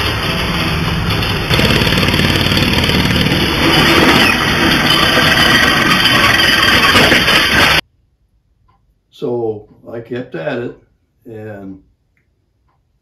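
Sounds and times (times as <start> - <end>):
air engine vehicle running: 0.0 - 5.7
tyres on gravel: 1.5 - 7.8.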